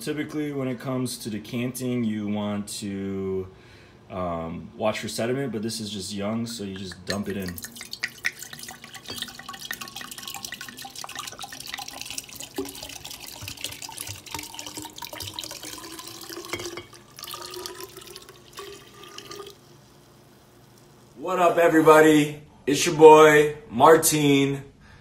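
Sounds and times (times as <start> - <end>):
wine pouring into decanter: 6.9 - 21.0.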